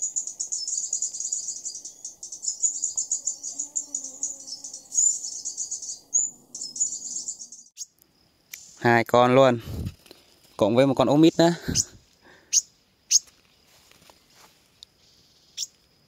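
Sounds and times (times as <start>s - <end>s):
insects trilling: 0.0s - 16.0s.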